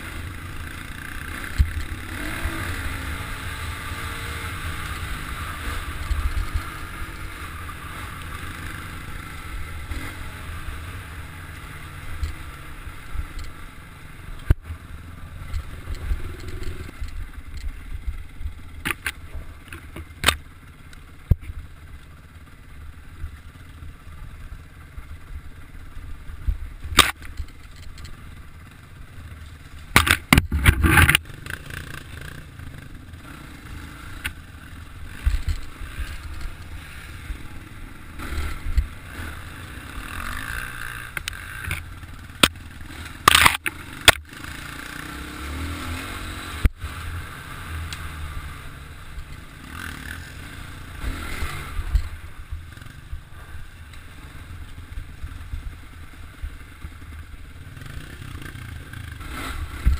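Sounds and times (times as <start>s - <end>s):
dirt bike engine revving: 0.0s - 20.3s, 29.8s - 59.9s
bike clattering over bumps: 29.8s - 32.0s.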